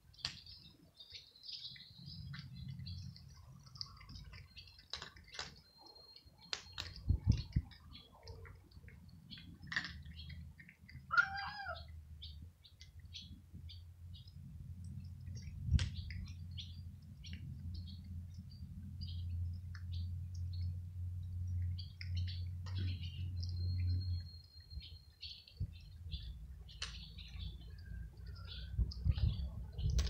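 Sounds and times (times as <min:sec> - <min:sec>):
small birds chirping: 0:00.0 - 0:30.0
cats crunching dry kibble: 0:01.6 - 0:05.8, 0:06.4 - 0:11.7, 0:14.3 - 0:23.6
cat meowing: 0:11.1 - 0:11.9.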